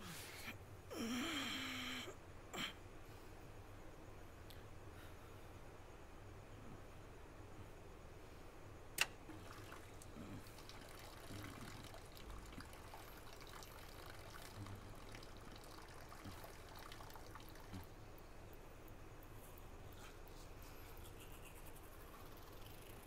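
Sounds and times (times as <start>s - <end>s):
man urinating into toilet: 9.3s - 18.0s.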